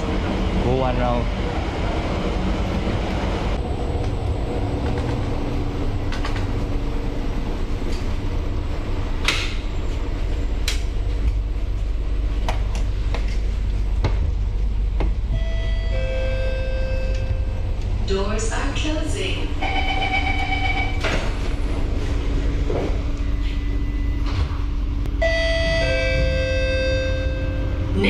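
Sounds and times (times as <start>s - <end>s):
metro train rumbling: 0.0s - 28.0s
whine of steady tones: 14.7s - 21.3s, 22.7s - 28.0s.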